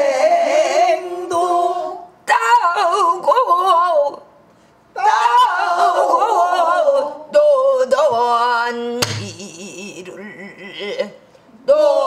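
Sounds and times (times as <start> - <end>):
woman singing with vibrato: 0.0 - 4.3, 5.0 - 12.0.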